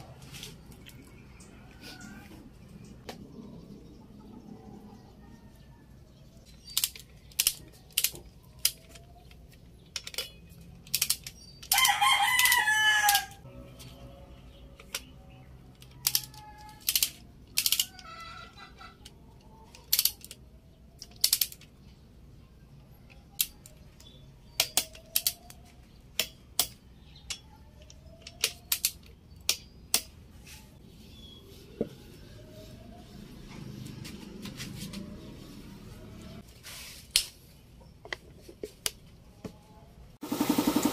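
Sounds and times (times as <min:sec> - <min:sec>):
wrench clicking on metal bolts: 0:09.9 - 0:13.4, 0:15.8 - 0:18.1, 0:19.7 - 0:20.4, 0:21.0 - 0:21.7, 0:24.6 - 0:25.6, 0:26.2 - 0:30.1
rooster crowing: 0:11.7 - 0:13.5.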